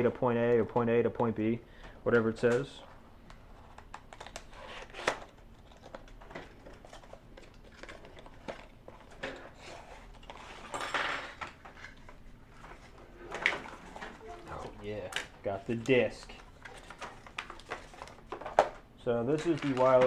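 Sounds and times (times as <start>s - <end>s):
packaging clicks and rustles: 3.6s - 14.2s, 15.0s - 20.0s.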